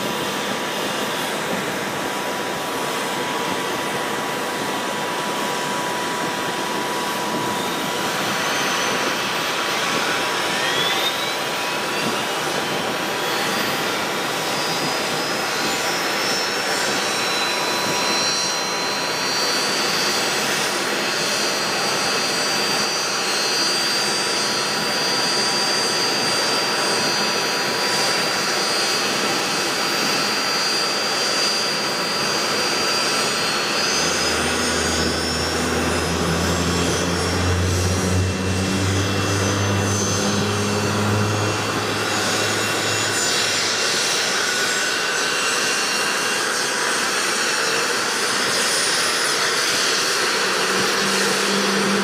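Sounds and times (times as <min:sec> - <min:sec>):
helicopter engines and rotors running: 0:00.0 - 0:52.0
high turbine whine: 0:00.0 - 0:52.0
low hum: 0:32.0 - 0:44.8, 0:49.4 - 0:52.0.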